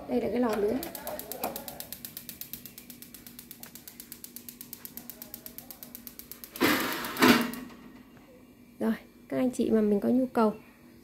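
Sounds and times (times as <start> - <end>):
spark igniter clicking: 0.4 - 7.7.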